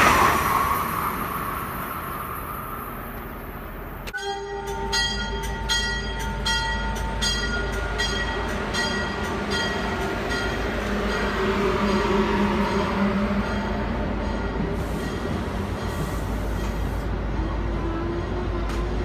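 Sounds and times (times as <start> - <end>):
low rumble of train: 0.0 - 19.0
train bell ringing: 4.2 - 16.8.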